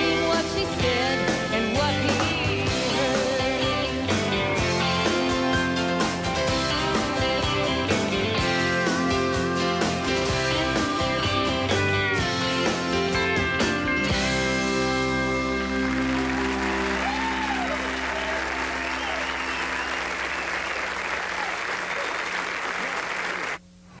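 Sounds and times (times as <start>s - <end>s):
audience applauding: 15.3s - 23.6s
shouted cheers: 16.0s - 23.6s.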